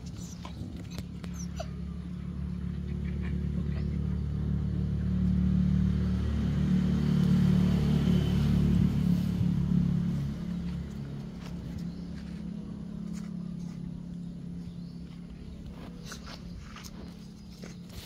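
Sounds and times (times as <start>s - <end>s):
passing vehicle engine drone: 0.0s - 18.0s.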